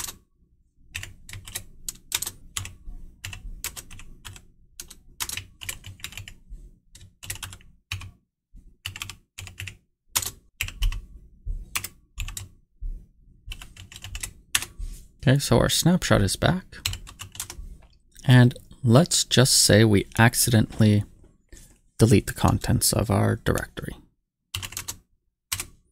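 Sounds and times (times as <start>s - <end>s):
typing on a computer keyboard: 0.0s - 0.2s, 0.9s - 6.4s, 7.0s - 8.2s, 8.8s - 11.0s, 11.7s - 12.5s, 13.5s - 14.7s, 16.8s - 17.6s, 24.5s - 25.8s.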